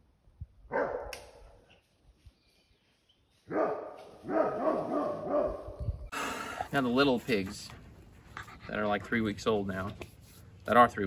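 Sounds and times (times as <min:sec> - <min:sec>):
dog barking: 0:00.7 - 0:01.1, 0:03.5 - 0:05.8.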